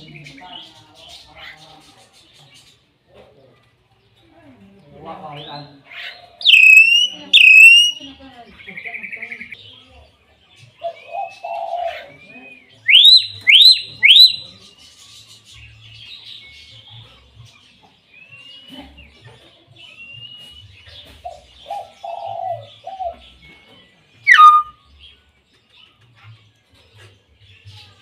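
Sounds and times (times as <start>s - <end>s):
myna rising whistles: 6.5s - 8.0s.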